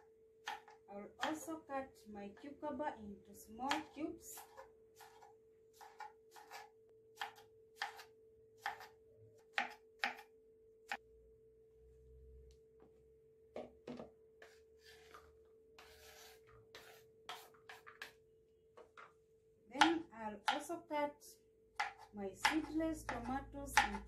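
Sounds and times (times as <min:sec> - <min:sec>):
knife chopping on plastic board: 0:00.4 - 0:01.5, 0:03.7 - 0:10.3, 0:15.8 - 0:18.2, 0:19.8 - 0:20.7, 0:21.7 - 0:24.0
knife scrape: 0:04.3 - 0:06.8, 0:14.4 - 0:17.9.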